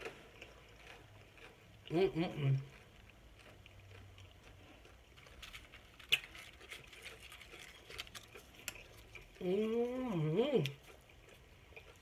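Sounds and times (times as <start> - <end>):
chewing: 0.0 - 12.0.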